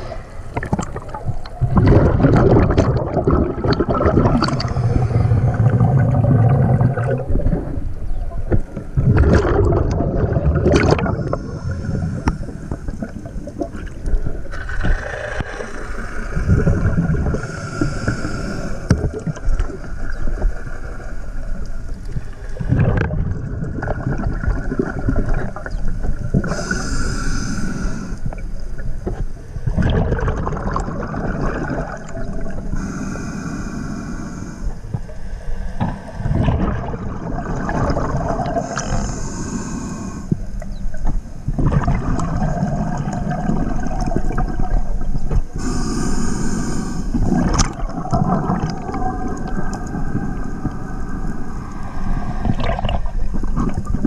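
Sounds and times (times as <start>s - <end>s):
gurgle of exhaled bubbles: 0.0s - 27.1s, 28.2s - 32.8s, 35.8s - 39.6s, 40.4s - 46.4s, 47.1s - 54.0s
hissing regulator inhale: 14.9s - 20.1s, 26.4s - 28.8s, 32.6s - 36.4s, 38.5s - 40.8s, 45.5s - 47.6s, 49.6s - 53.6s.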